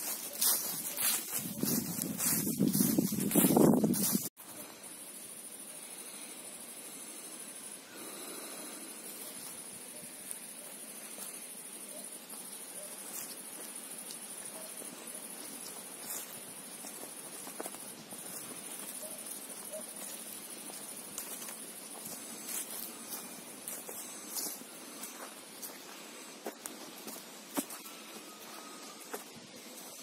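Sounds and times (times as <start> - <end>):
footsteps on dry leaves: 0.0 - 4.6, 11.0 - 30.0
insects chirring: 0.0 - 30.0.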